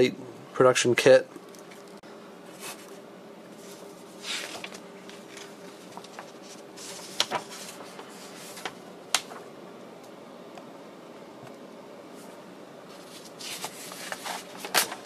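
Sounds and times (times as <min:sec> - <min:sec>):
faint steady hum: 0:00.0 - 0:15.0
paper pages rustling: 0:02.6 - 0:09.4, 0:12.9 - 0:15.0.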